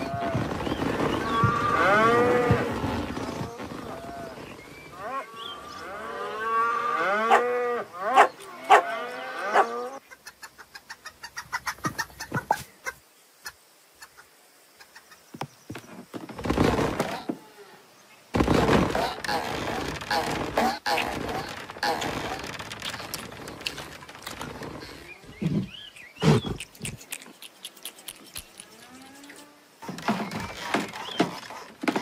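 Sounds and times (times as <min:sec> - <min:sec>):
cartoon cows mooing: 0:01.2 - 0:02.9.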